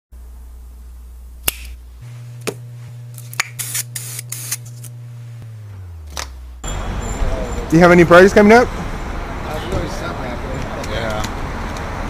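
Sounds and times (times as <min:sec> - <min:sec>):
low steady hum: 0:00.2 - 0:07.7
spray-paint can hissing: 0:03.2 - 0:04.8.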